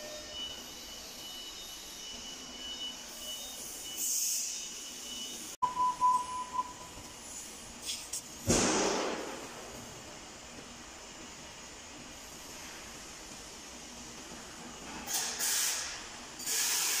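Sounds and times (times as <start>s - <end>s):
short electronic beeps: 0.0s - 7.0s
machinery high-pitched whine: 0.0s - 7.7s.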